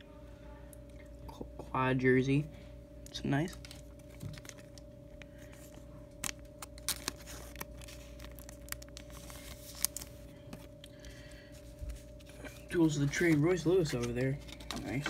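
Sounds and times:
faint steady hum: 0:00.0 - 0:15.0
trading cards rustling: 0:03.2 - 0:15.0.

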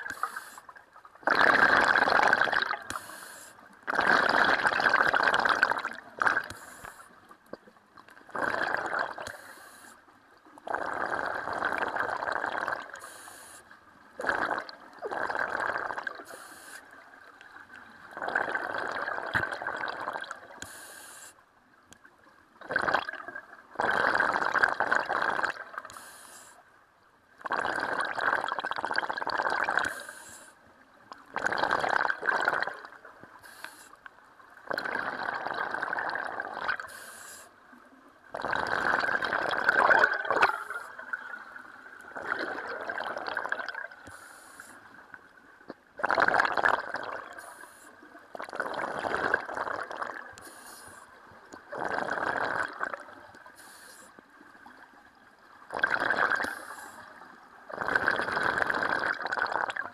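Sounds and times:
exhaled bubbles rushing underwater: 0:01.2 - 0:03.0, 0:03.9 - 0:06.6, 0:08.2 - 0:09.3, 0:17.0 - 0:20.6, 0:22.6 - 0:25.9, 0:31.3 - 0:33.3, 0:34.6 - 0:36.9, 0:38.0 - 0:44.1, 0:46.0 - 0:47.4, 0:51.4 - 0:53.5, 0:55.4 - 0:59.9.

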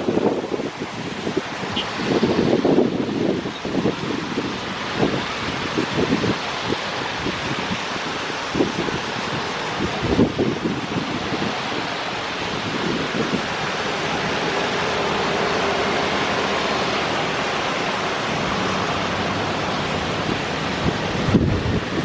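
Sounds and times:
tyres hissing on wet road: 0:00.0 - 0:22.0
car and motorcycle engines passing: 0:13.4 - 0:21.7.

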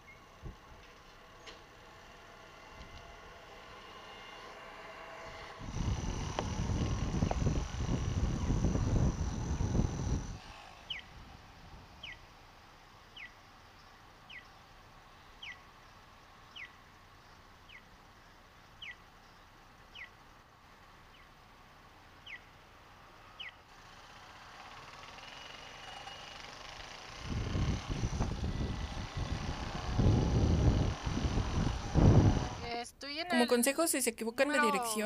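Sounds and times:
wind: 0:00.0 - 0:35.0
motorcycle pulling away: 0:23.4 - 0:32.7.

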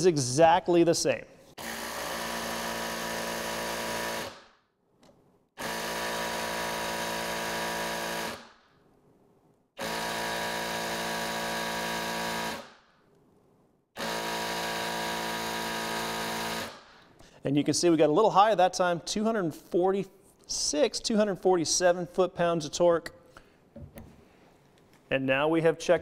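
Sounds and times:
impact wrench hammering: 0:05.6 - 0:08.6, 0:09.8 - 0:12.8, 0:14.0 - 0:17.1.

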